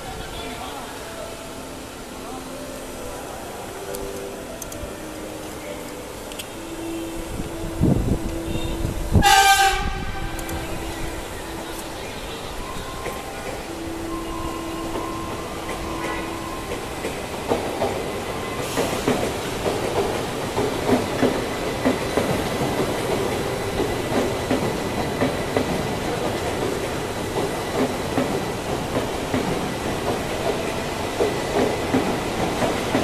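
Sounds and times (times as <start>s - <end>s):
rush of passing train: 0.0s - 33.0s
train horn: 6.8s - 10.8s.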